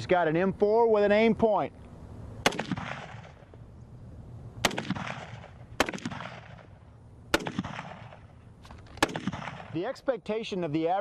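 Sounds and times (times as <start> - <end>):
rifle shots echoing: 2.4 - 3.5, 4.6 - 10.0.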